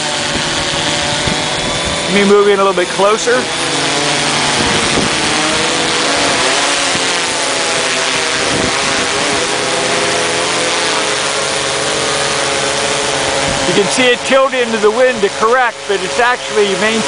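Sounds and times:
drone propellers whining: 0.0 - 17.0
wind rushing hiss: 4.3 - 7.6.

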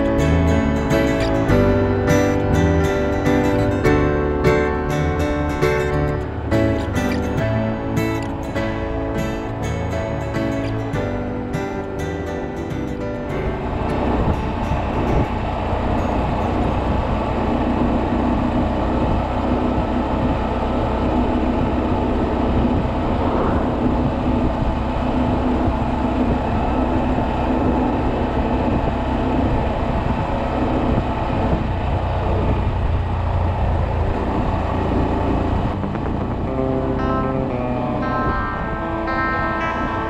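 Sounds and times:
motorcycle engine running: 0.0 - 40.0
brief rising tone: 22.8 - 25.3.

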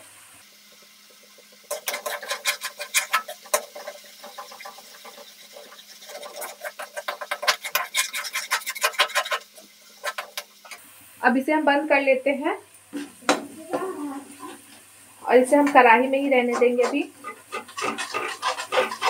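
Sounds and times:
metal spatula scraping a metal pan: 1.6 - 10.8, 16.3 - 19.0.

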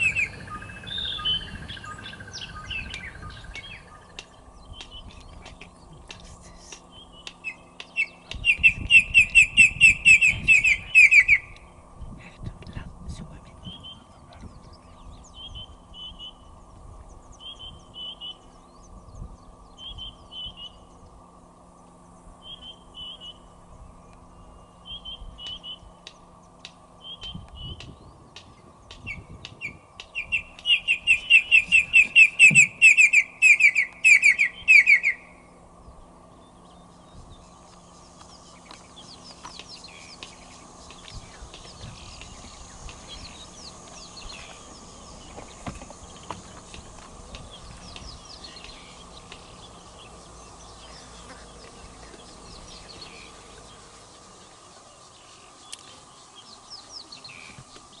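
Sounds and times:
bird calling in whistles: 0.0 - 4.1, 7.0 - 11.6, 29.0 - 35.4.

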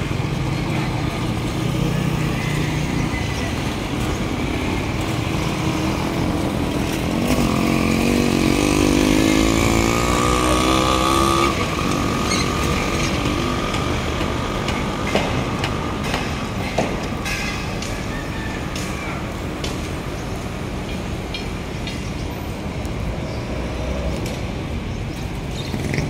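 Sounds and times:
street traffic: 0.0 - 26.0
small motorcycle engine passing: 5.1 - 14.4.

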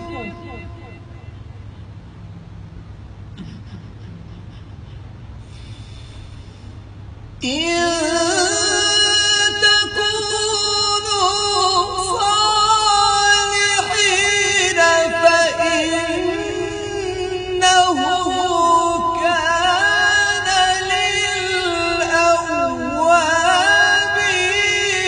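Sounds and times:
man reciting melodically: 0.0 - 2.0, 7.4 - 25.0.

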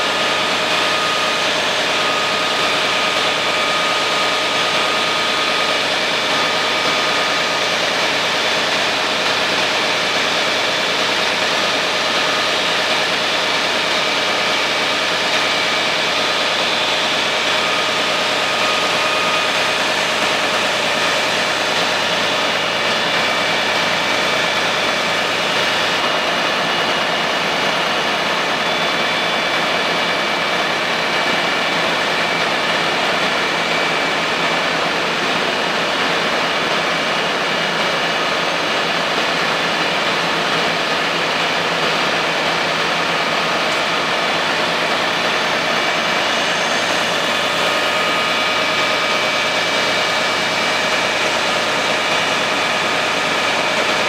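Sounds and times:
constant whine: 0.0 - 54.0
fire engine drone: 0.0 - 54.0.

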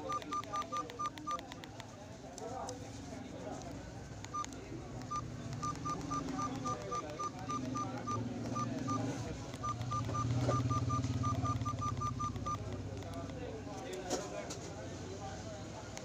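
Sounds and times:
phone keypad beeps: 0.0 - 2.0, 4.2 - 13.4.

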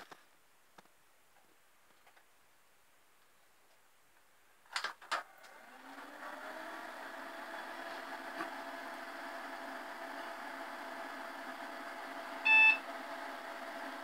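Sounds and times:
computer fan and hard drive whir: 5.2 - 14.0.

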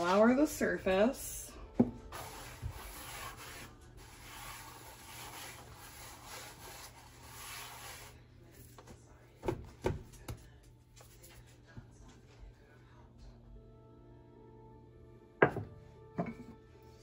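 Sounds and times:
hand rubbing flour on countertop: 2.1 - 8.8.

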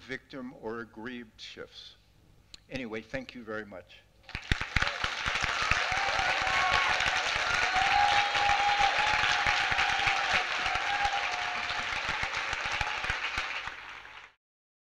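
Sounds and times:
large audience applauding: 4.3 - 14.4.

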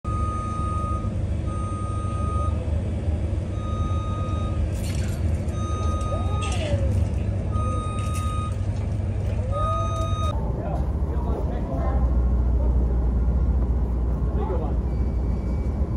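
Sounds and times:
low engine rumble: 0.0 - 15.9
reversing alarm beeping: 0.1 - 2.7, 3.4 - 8.7, 9.4 - 10.4.

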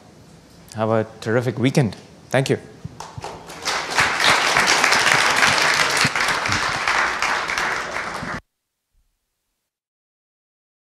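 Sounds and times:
audience applauding: 3.0 - 8.4.

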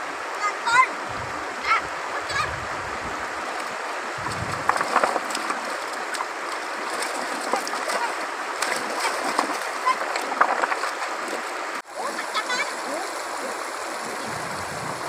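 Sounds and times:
river running over stones: 0.0 - 15.0
hands splashing in water: 4.2 - 11.5.

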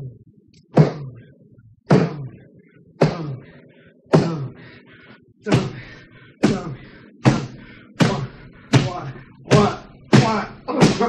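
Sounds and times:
fists pounding a wall: 4.1 - 4.5, 5.5 - 11.0.

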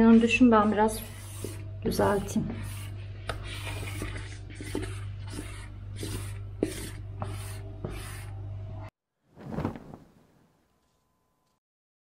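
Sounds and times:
squeegee scraping over vinyl film: 1.0 - 8.4.

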